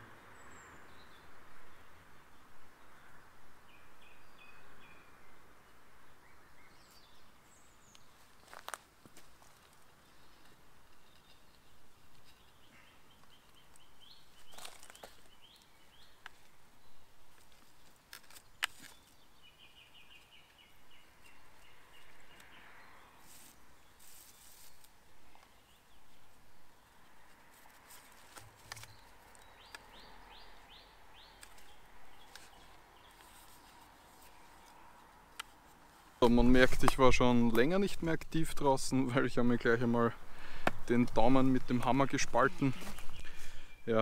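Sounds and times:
birds chirping and trilling: 0:00.2 - 0:08.8, 0:09.4 - 0:44.0
light rustling: 0:40.4 - 0:43.6.

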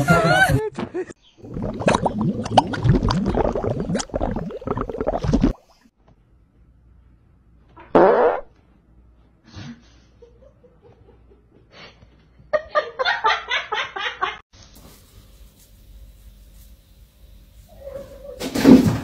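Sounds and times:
person laughing: 0:00.0 - 0:01.1.

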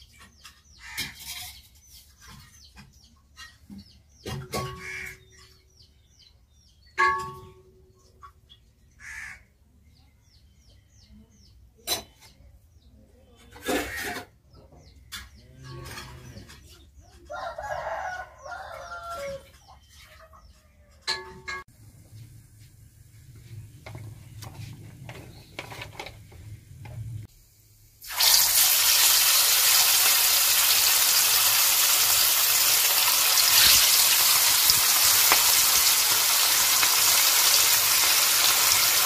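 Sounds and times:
small birds chirping: 0:00.0 - 0:07.0, 0:07.8 - 0:13.7, 0:14.4 - 0:21.1
chickens clucking: 0:13.4 - 0:21.6
rooster crowing: 0:17.3 - 0:19.5.

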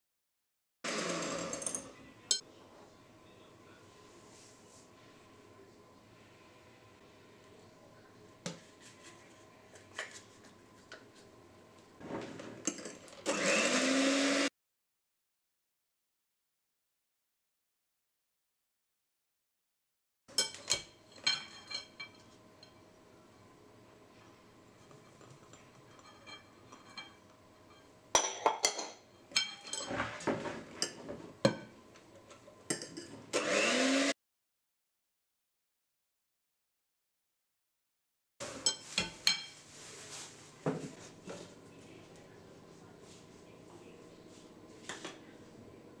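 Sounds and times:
electric hand mixer whisking: 0:00.9 - 0:01.6, 0:13.2 - 0:14.5, 0:33.3 - 0:34.2.

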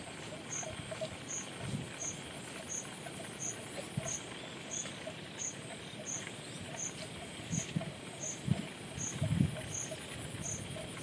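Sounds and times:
insects chirping: 0:00.0 - 0:11.0
steady hiss: 0:00.0 - 0:11.0.

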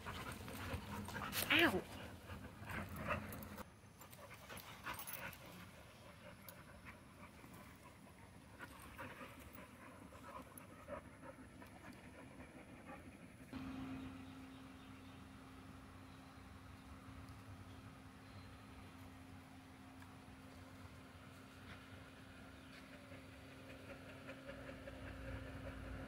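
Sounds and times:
dogs panting: 0:00.0 - 0:16.2, 0:19.9 - 0:26.0
steady low hum: 0:00.0 - 0:26.0.

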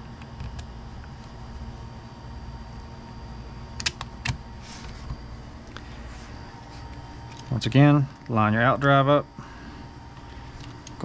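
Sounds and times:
steady low hum: 0:00.0 - 0:11.0
sharp clicks: 0:03.8 - 0:04.4.

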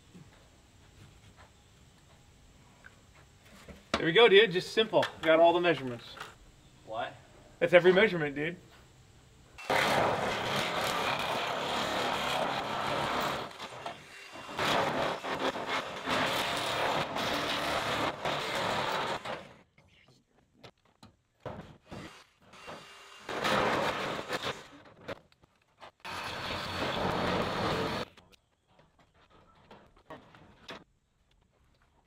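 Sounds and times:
power shears cutting steel: 0:09.6 - 0:19.6, 0:21.9 - 0:24.8, 0:26.0 - 0:28.1.

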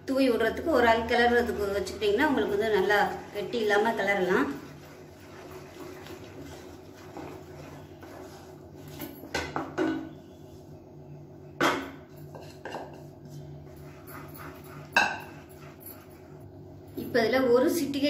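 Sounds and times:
stirrer scraping a steel pan: 0:01.3 - 0:10.4, 0:12.1 - 0:16.4.

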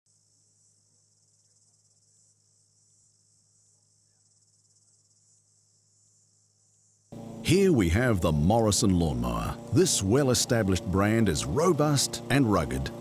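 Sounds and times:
high-pitched insect trill: 0:00.1 - 0:07.2
low hum: 0:06.7 - 0:13.0.

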